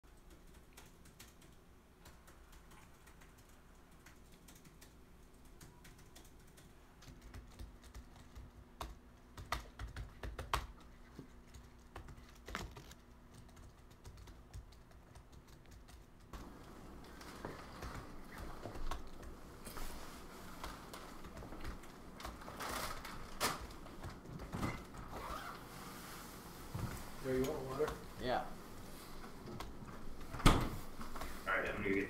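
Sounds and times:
laptop keyboard typing: 0:00.0 - 0:19.8, 0:20.4 - 0:25.4.

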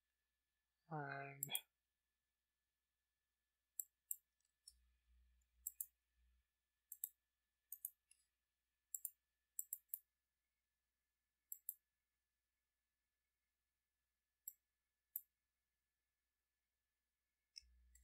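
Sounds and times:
computer mouse clicking: 0:03.8 - 0:04.8, 0:05.6 - 0:06.0, 0:06.9 - 0:08.2, 0:08.9 - 0:10.1, 0:11.5 - 0:11.8, 0:14.4 - 0:15.3, 0:17.6 - 0:18.0.

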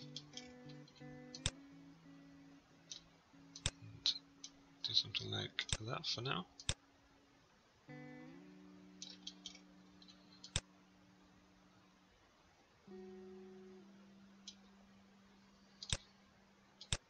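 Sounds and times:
acoustic guitar chords: 0:00.0 - 0:05.6, 0:07.9 - 0:10.1
sharp clicks: 0:00.1 - 0:01.6, 0:02.9 - 0:04.6, 0:06.6 - 0:06.8, 0:15.8 - 0:16.1, 0:16.8 - 0:17.0.

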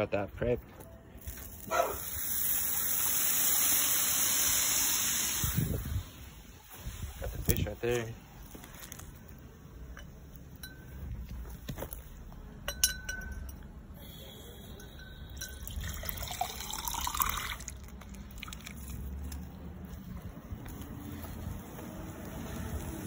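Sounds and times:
light glass clinks: 0:09.9 - 0:11.2, 0:12.6 - 0:13.7, 0:14.7 - 0:17.0
water filling glass jar: 0:14.8 - 0:19.0.

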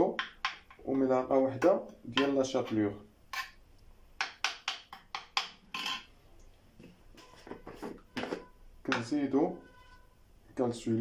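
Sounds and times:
metal spoon scraping clay dish: 0:01.9 - 0:03.6.

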